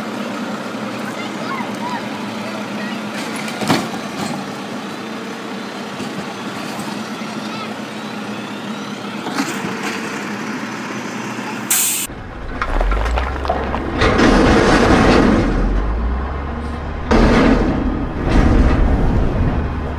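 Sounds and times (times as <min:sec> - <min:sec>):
garbage truck running: 0:00.0 - 0:19.9
short sharp hiss: 0:11.7 - 0:12.1
crunching and crashing: 0:12.1 - 0:19.9.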